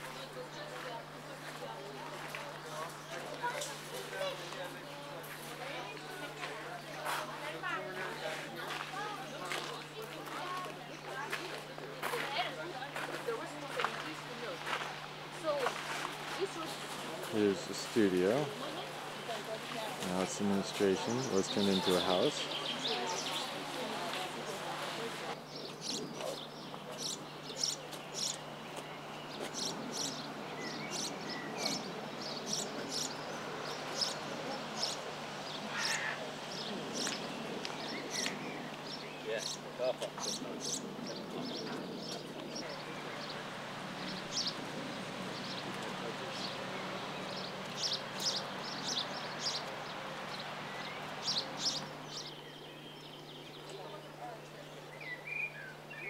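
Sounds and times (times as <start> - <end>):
background noise: 0.0 - 56.0
small songbirds chirping: 13.2 - 56.0.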